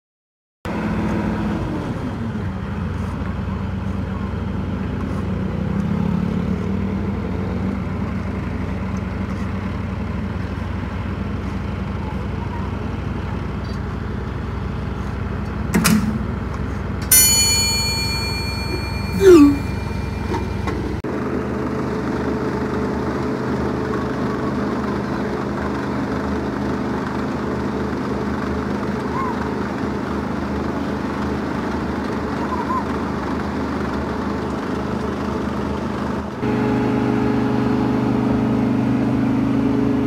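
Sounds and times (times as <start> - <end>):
milling machine engine hum: 16.3 - 40.0
bright ringing chime: 17.1 - 21.0.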